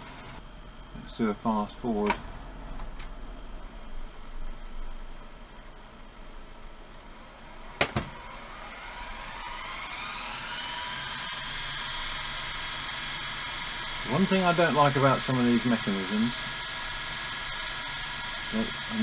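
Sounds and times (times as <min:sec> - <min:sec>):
reel motor whine: 0:00.0 - 0:00.4, 0:06.3 - 0:19.0.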